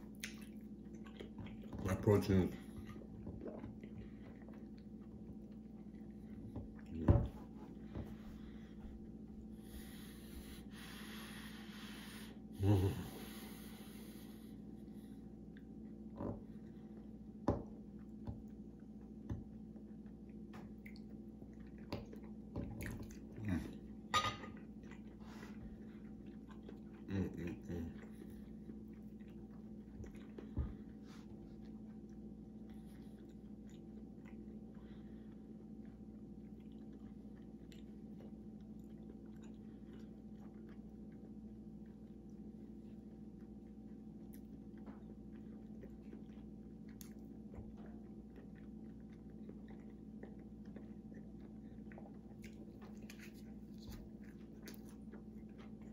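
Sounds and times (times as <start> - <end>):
person chewing: 0.0 - 1.8, 17.8 - 55.9
low background hum: 0.0 - 55.9
mouth clicks and smacks: 0.1 - 1.7.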